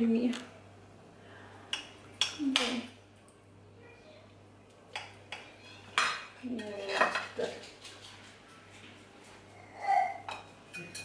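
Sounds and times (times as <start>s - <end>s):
knife scraping ceramic plates: 5.0s - 8.3s.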